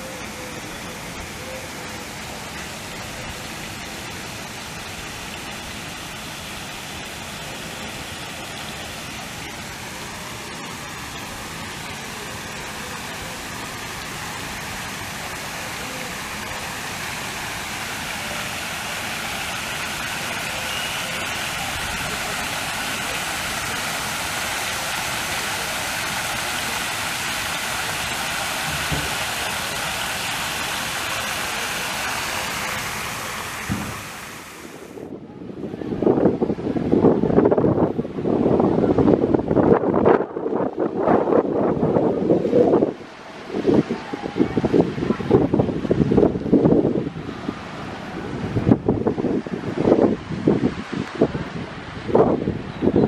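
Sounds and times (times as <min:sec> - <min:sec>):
running water rushing: 0:00.0 - 0:53.0
wind buffeting the microphone: 0:34.7 - 0:53.0.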